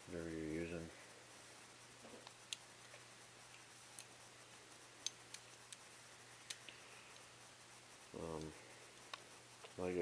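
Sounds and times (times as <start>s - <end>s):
faint ticks of handled trigger: 2.2s - 4.2s, 5.0s - 7.3s, 8.3s - 9.8s.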